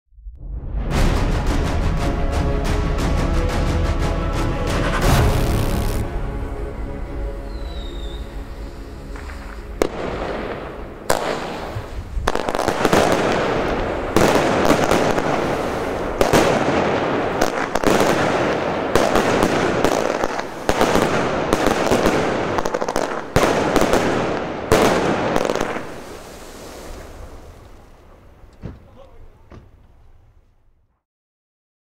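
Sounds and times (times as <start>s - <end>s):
firework bangs: 4.7s - 6.2s, 7.9s - 29.9s
hiss of firework stars: 5.0s - 6.1s, 25.1s - 28.1s.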